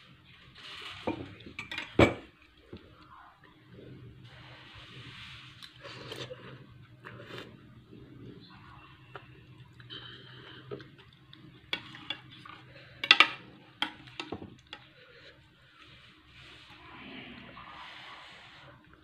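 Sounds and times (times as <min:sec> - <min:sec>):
cutlery clinking against bowl: 0:01.0 - 0:02.3, 0:11.7 - 0:14.9.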